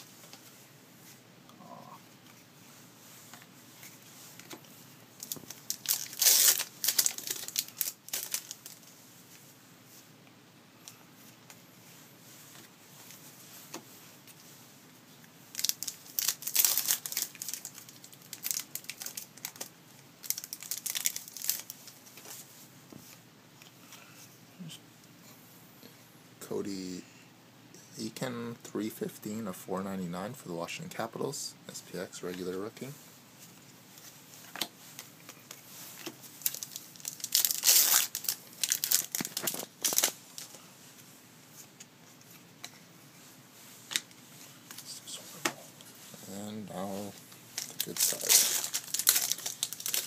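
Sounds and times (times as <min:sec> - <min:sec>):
foil wrappers crinkling and tearing: 0:05.2 - 0:08.9, 0:15.5 - 0:22.0, 0:34.4 - 0:40.6, 0:46.7 - 0:50.0.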